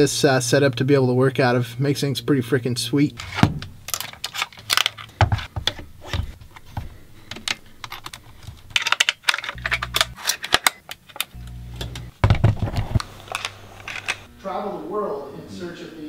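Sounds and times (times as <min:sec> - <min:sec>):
camera parts clicking and snapping: 0:03.9 - 0:05.8, 0:07.3 - 0:11.4
short low hum: 0:11.4 - 0:12.2.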